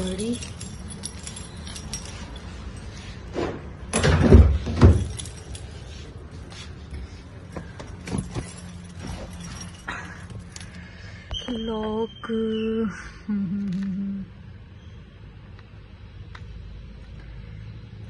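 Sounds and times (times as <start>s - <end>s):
car keys jingling: 0.0s - 3.3s, 3.9s - 11.0s.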